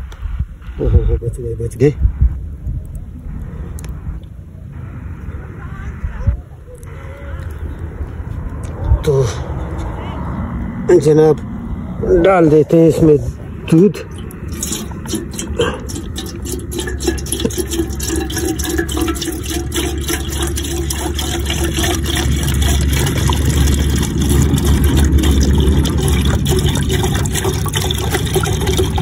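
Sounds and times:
milk pouring into a pot: 0:14.1 - 0:29.0.

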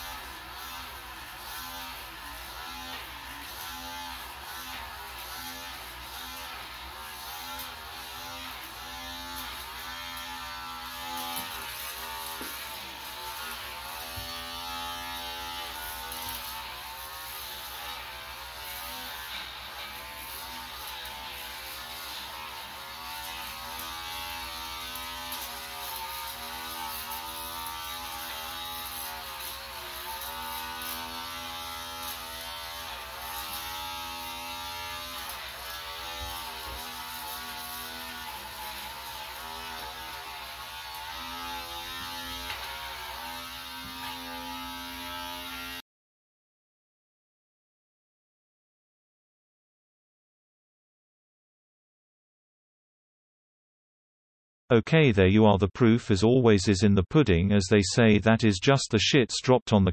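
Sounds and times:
electric shaver buzzing: 0:00.0 - 0:45.8.

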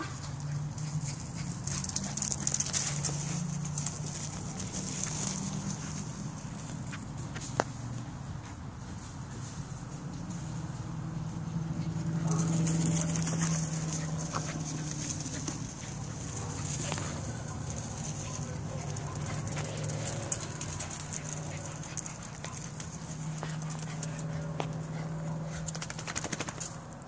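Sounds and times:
dog paws pattering on grass: 0:00.0 - 0:26.8
quick rattling run: 0:25.7 - 0:26.8.

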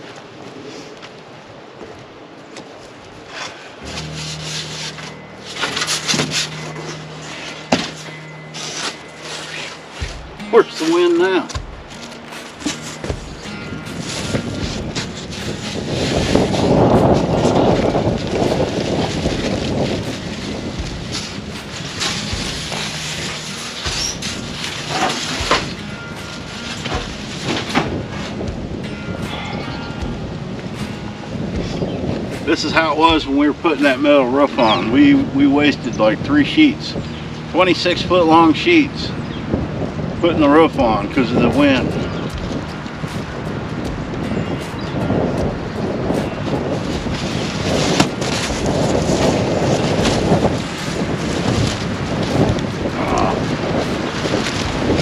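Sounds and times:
gusty wind buffeting microphone: 0:09.8 - 0:55.0
sheet panels scraping and rubbing: 0:21.1 - 0:25.7.

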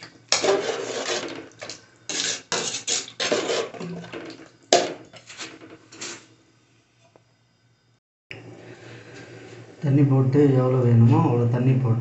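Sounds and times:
metal spoon scraping a pot: 0:00.3 - 0:06.3.

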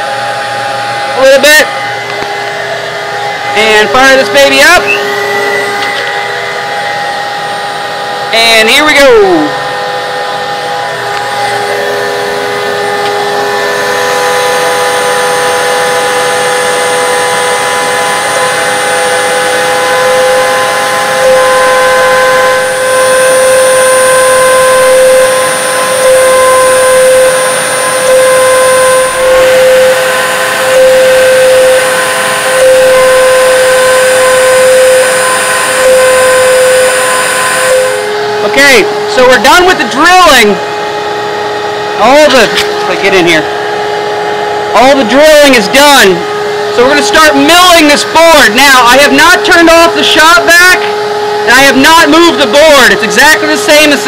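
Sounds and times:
rotary tool whining: 0:00.0 - 0:54.0
shop vacuum running: 0:00.0 - 0:54.0.

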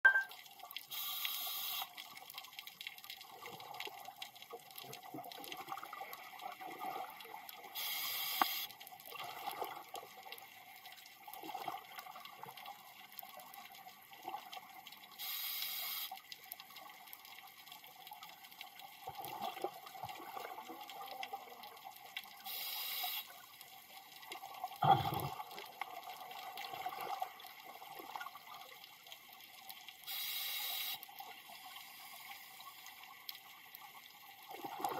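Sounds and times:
underwater bubbling and gurgling: 0:00.1 - 0:34.9
scuba regulator breath hissing: 0:07.8 - 0:08.7, 0:15.2 - 0:16.1, 0:30.1 - 0:31.0.

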